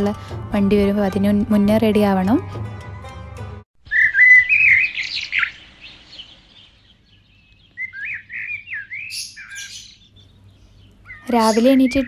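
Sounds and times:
songbirds chirping: 3.8s - 12.0s.

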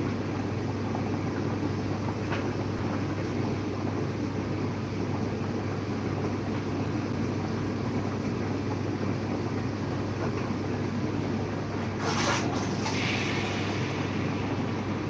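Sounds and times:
low machine hum: 0.0s - 15.0s
steam wand hissing: 12.0s - 15.0s.

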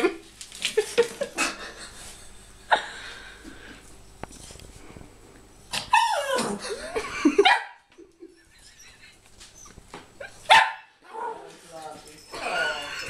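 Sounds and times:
dog whining: 5.7s - 6.6s, 8.4s - 10.5s, 12.1s - 13.0s
small dog yapping: 5.7s - 6.6s, 10.2s - 11.5s.

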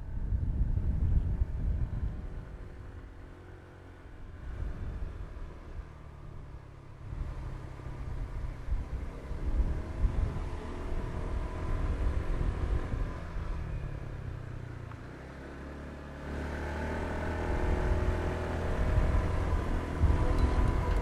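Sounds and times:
low road rumble: 0.0s - 21.0s
motorbike engine running: 18.8s - 21.0s.

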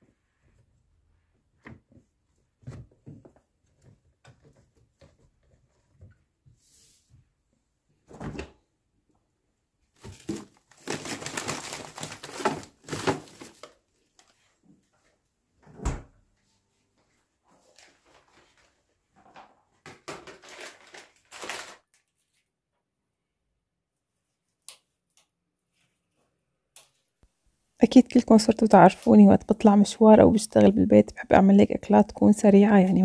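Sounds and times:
kitchen items knocking and rustling: 10.0s - 13.7s, 19.1s - 21.0s.

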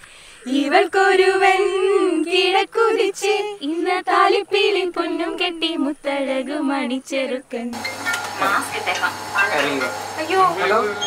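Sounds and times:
women singing in unison: 0.4s - 7.8s.

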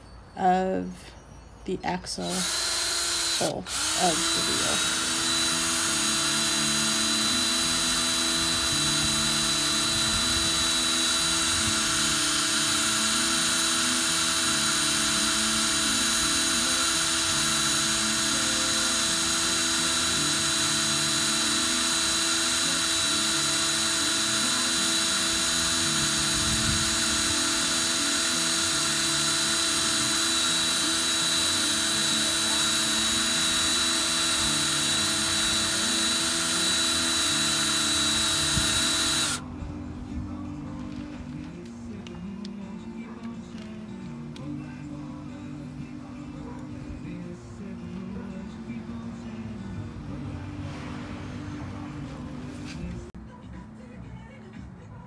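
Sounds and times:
cordless drill running: 2.3s - 39.4s.

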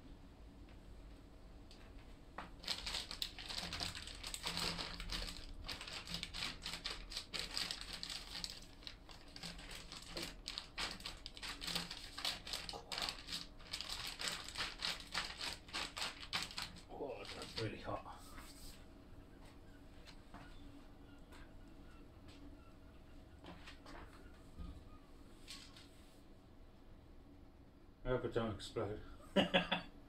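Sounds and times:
plastic bag crinkling: 2.5s - 17.9s.

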